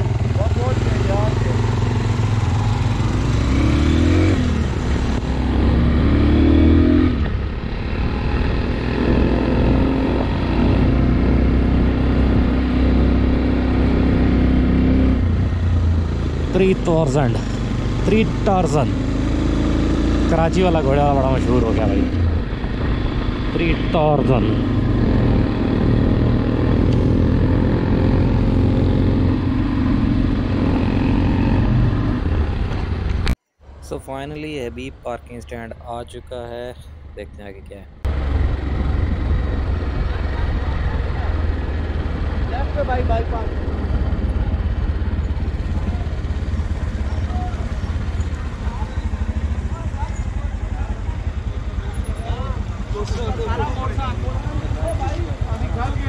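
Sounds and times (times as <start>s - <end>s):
motorcycle engine revving: 0.0s - 34.7s, 37.9s - 56.0s.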